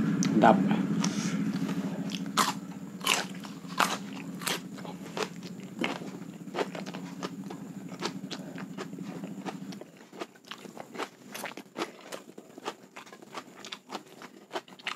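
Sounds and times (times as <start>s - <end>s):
steady low hum: 0.0s - 14.9s
crunching bites of cucumber: 1.0s - 14.9s.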